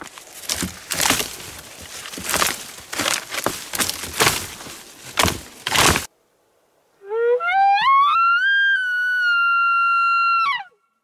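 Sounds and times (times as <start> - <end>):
branches rustling and snapping: 0.0 - 6.1.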